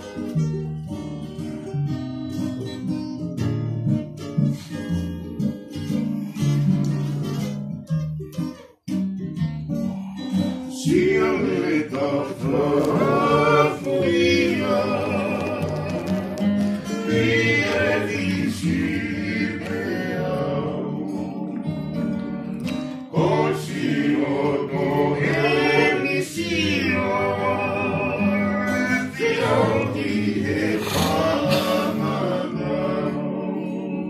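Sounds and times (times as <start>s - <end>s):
acoustic guitar: 0.0s - 34.0s
group singing in harmony: 10.7s - 22.2s, 23.0s - 34.0s.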